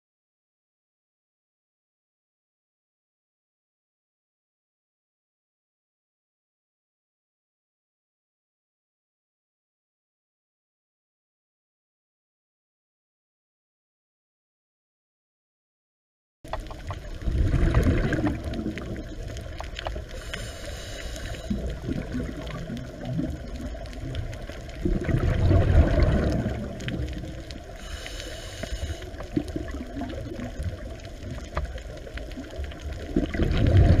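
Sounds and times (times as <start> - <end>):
underwater rumble and gurgling: 16.5 - 34.0.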